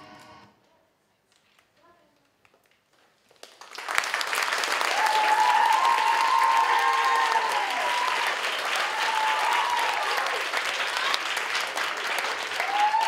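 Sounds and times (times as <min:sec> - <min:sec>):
audience clapping: 0:02.8 - 0:13.0
crowd cheering: 0:03.7 - 0:13.0.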